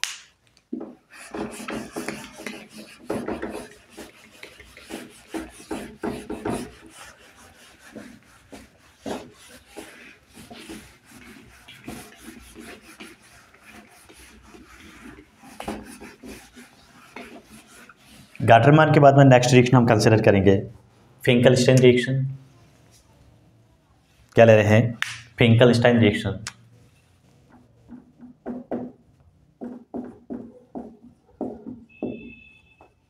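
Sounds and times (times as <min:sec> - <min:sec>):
pen scratching while handwriting: 0:01.1 - 0:18.4.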